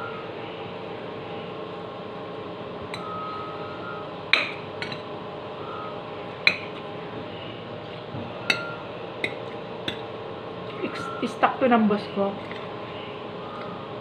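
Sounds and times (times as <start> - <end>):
steady background hum: 0.0 - 14.0
metal spoon clinking against bowl: 4.3 - 5.1, 6.4 - 6.8, 8.5 - 10.1.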